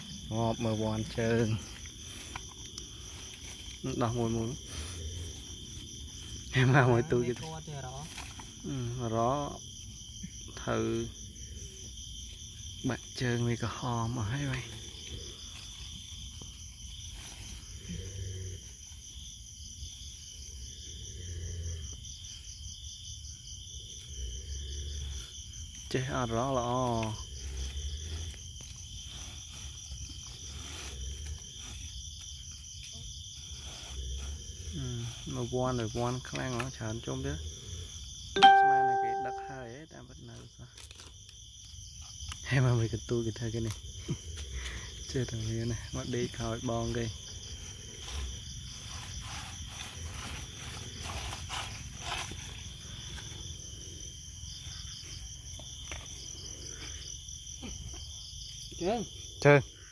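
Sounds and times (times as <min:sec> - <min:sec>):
rustling and scraping: 0:00.0 - 0:08.7, 0:14.4 - 0:20.4, 0:27.1 - 0:36.9, 0:43.6 - 0:58.6
crickets chirping: 0:00.0 - 0:59.9.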